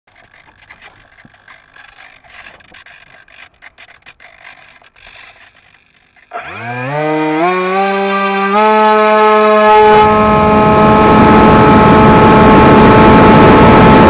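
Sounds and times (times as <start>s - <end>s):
handling scraping and rubbing: 0.1s - 7.9s.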